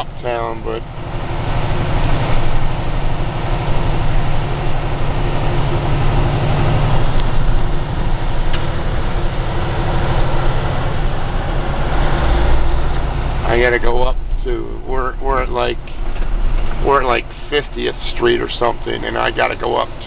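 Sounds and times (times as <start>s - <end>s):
road noise: 0.0s - 20.0s
truck diesel engine running: 0.0s - 20.0s.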